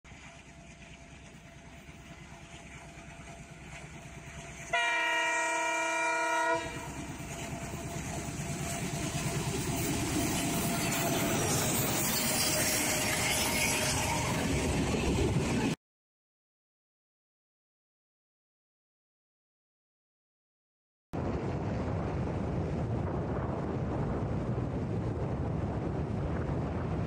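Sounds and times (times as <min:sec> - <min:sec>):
diesel locomotive engine: 0:00.1 - 0:15.8
train wheels on rails: 0:00.1 - 0:15.8
train horn blast: 0:04.7 - 0:07.8.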